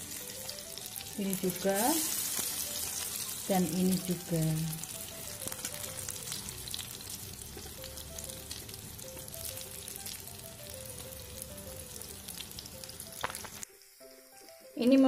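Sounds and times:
oil sizzling in frying pan: 0.0 - 15.0.

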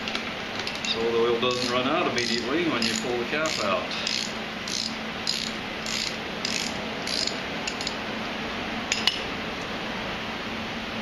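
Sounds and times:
socket ratchet clicking: 1.5 - 8.0.

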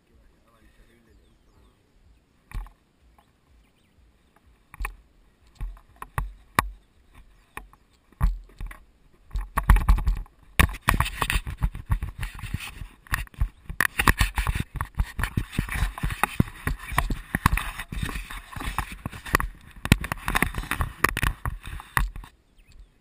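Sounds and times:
wind buffeting microphone: 0.0 - 23.0
wheels rolling on asphalt: 2.6 - 22.6.

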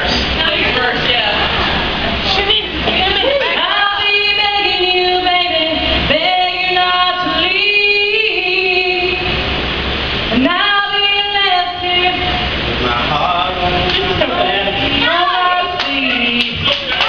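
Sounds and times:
woman singing unaccompanied: 2.3 - 9.4, 10.3 - 12.5, 14.4 - 16.6.

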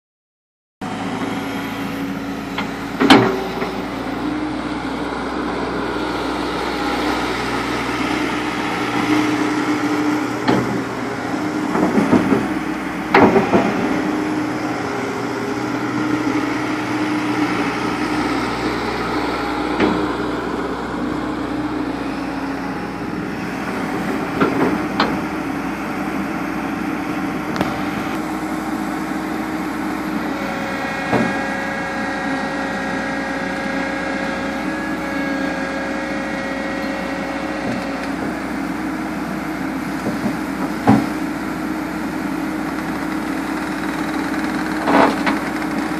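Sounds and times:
excavator diesel engine running: 0.8 - 45.9.

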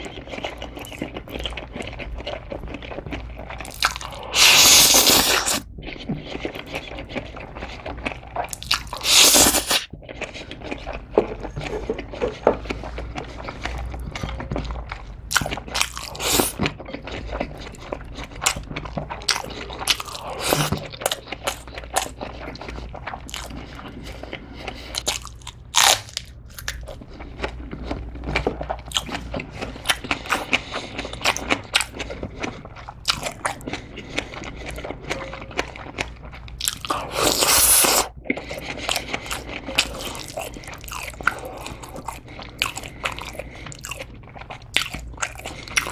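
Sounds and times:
wet chewing with crunches: 0.0 - 45.9
noodle slurping: 3.6 - 13.9, 37.0 - 43.7.

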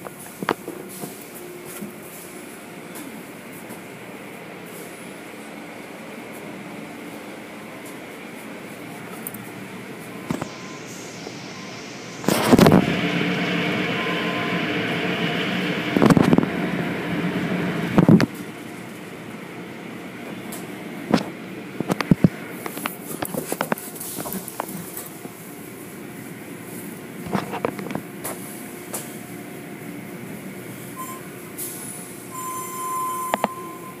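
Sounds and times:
low mechanical hum: 0.0 - 34.0
car wash water and brushes rushing: 8.5 - 19.6
steady high tone: 9.8 - 17.9, 32.3 - 34.0.

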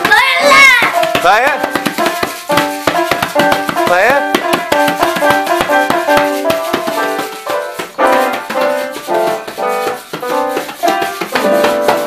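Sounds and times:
hand drum slaps: 0.0 - 12.0
piano note clusters: 0.0 - 12.0
shaker rattling: 4.8 - 12.0.

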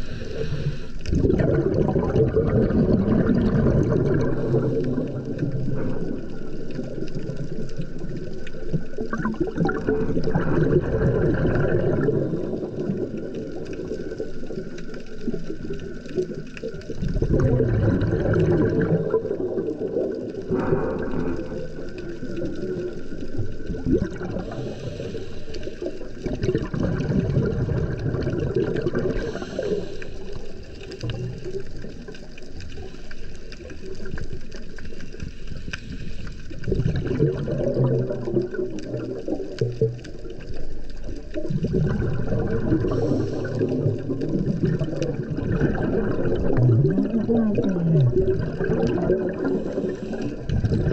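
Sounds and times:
air bubbling underwater: 1.1 - 7.6, 8.6 - 14.6, 16.2 - 24.7, 26.0 - 29.9, 36.5 - 50.9.

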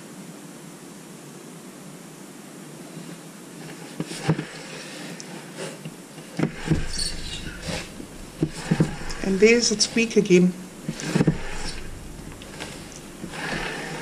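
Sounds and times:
soft knocks and rustles: 6.3 - 14.0.

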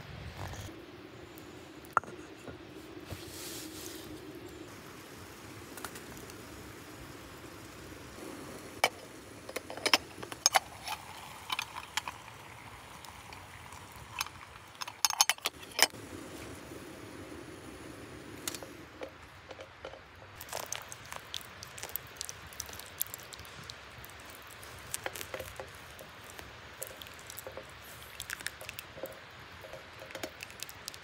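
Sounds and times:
faint background noise: 0.0 - 31.0
small metal objects clinking: 9.5 - 12.4.

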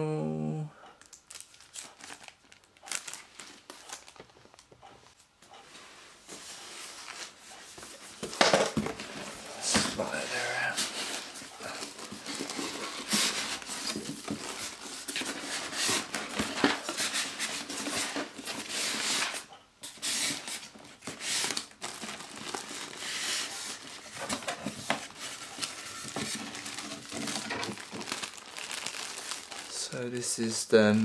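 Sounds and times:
plastic wrap crinkling: 1.0 - 5.2, 6.9 - 31.0
cardboard scraping: 6.3 - 29.8.

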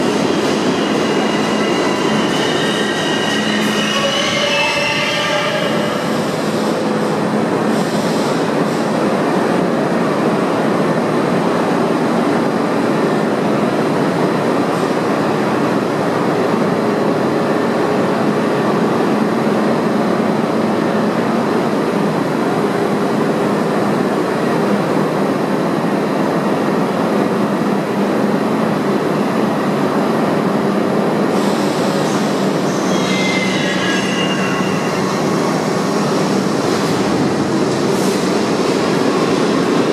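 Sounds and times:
subway train wheels rumbling on rail: 0.0 - 39.9
high-pitched wheel squeal: 0.1 - 6.4, 31.4 - 35.7.

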